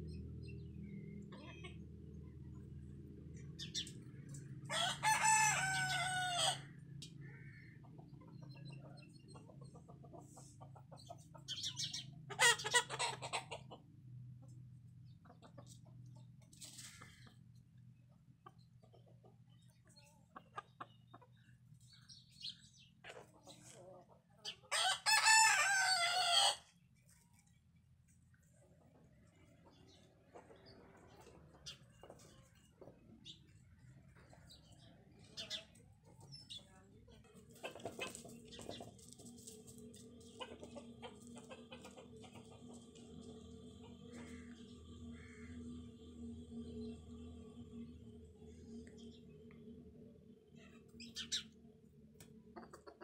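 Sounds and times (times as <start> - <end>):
rooster crowing: 4.7 - 6.7, 24.7 - 26.7
chickens clucking: 5.2 - 27.6, 28.4 - 47.8, 50.5 - 53.0
faint steady hum: 38.4 - 53.0.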